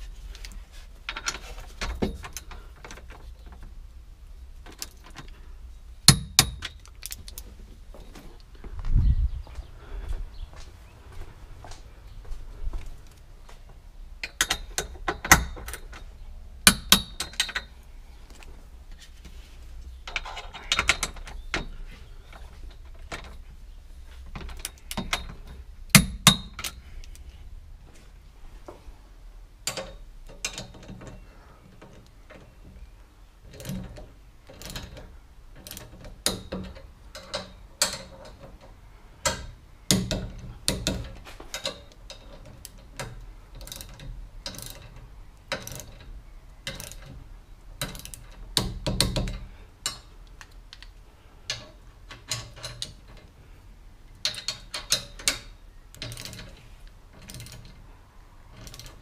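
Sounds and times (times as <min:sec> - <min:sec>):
tools knocking on metal tubes: 0:33.5 - 0:47.2, 0:47.8 - 0:50.1.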